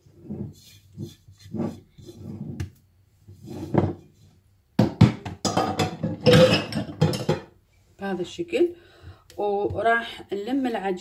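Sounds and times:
mixing bowl knocking and clattering: 0:04.8 - 0:07.5.

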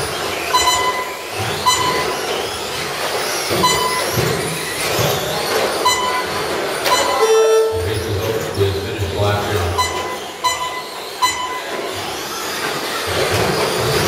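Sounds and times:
rc truck motors whining: 0:00.0 - 0:14.0
short electronic beeps: 0:00.5 - 0:02.4, 0:03.5 - 0:04.3, 0:05.8 - 0:08.0, 0:09.5 - 0:11.9.

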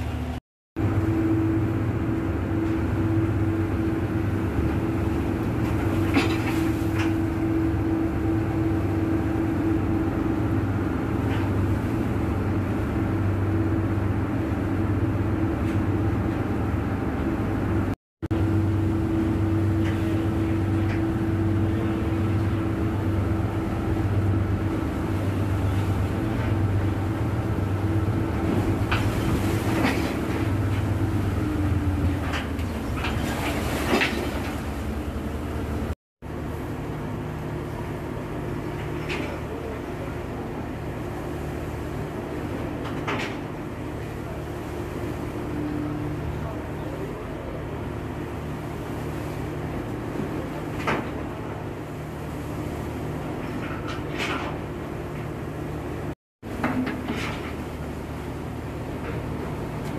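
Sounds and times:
sea water rushing along hull: 0:00.0 - 0:59.9
ship engines droning: 0:00.0 - 0:59.9.

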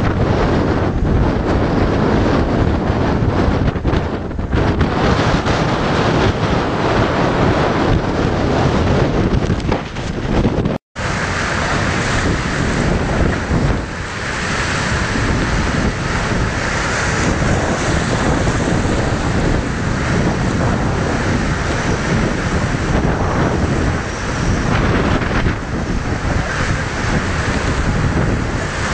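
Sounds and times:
rough sea: 0:00.0 - 0:28.9
storm waves crashing: 0:00.0 - 0:28.9
strong wind buffeting microphone: 0:00.0 - 0:28.9.

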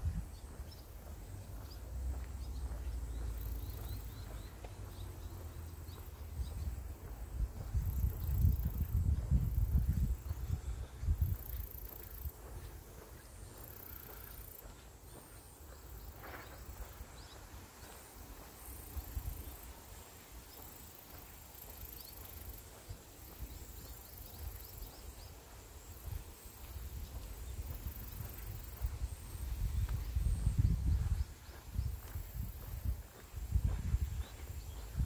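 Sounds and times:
wind rumbling on microphone: 0:00.0 - 0:13.6, 0:22.2 - 0:35.0
grass rustling in wind: 0:05.2 - 0:35.0.

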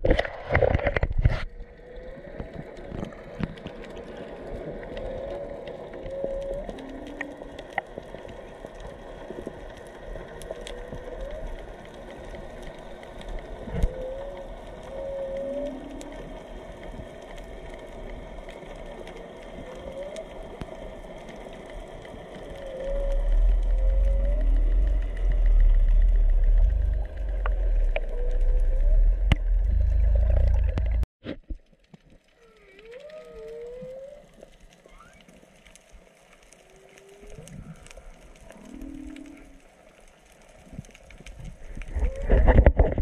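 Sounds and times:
faint crackling and hiss: 0:00.0 - 0:43.0
whale song underwater: 0:01.5 - 0:31.0, 0:32.1 - 0:43.0
loud low rumble: 0:23.4 - 0:31.1.

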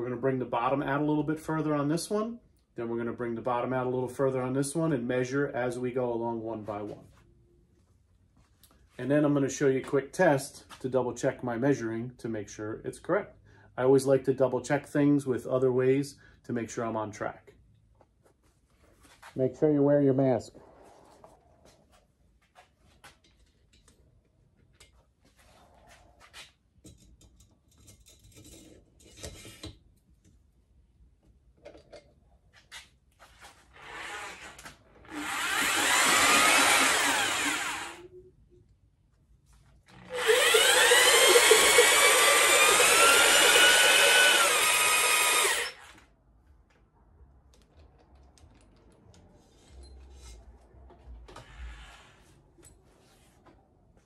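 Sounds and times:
electric drill whining: 0:33.8 - 0:38.1, 0:39.9 - 0:46.0.

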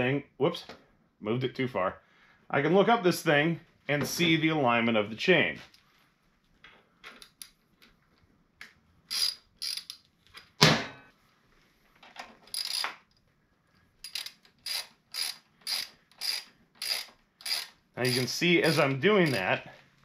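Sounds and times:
socket ratchet clicking: 0:09.1 - 0:10.5, 0:12.5 - 0:13.1, 0:14.0 - 0:19.4.

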